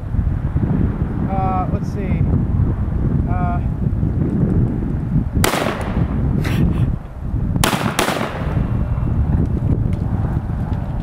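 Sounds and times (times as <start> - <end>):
wind buffeting microphone: 0.0 - 11.0
gunshots: 5.4 - 6.1, 7.6 - 8.7.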